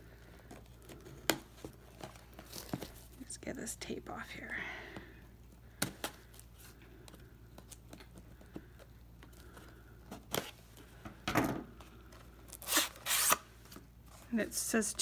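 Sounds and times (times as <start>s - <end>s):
scissors snipping tape: 12.6s - 13.4s
tape and cardboard rasping: 12.6s - 13.4s.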